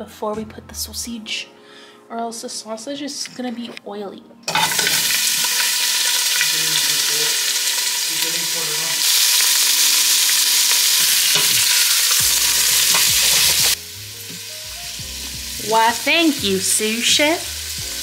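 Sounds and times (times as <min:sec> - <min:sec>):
sausage sizzling in hot oil: 0:04.5 - 0:18.0.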